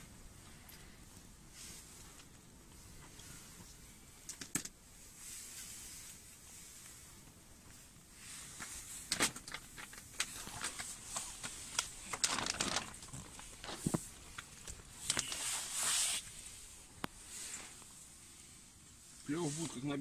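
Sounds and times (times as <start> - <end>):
faint hiss: 0.0 - 12.0, 13.3 - 20.0
plastic bag rustling and crinkling: 7.8 - 18.0.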